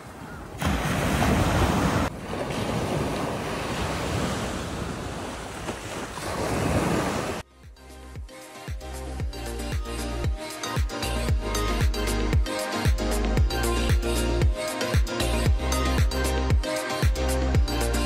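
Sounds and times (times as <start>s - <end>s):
surf breaking on a beach: 0.0s - 7.4s.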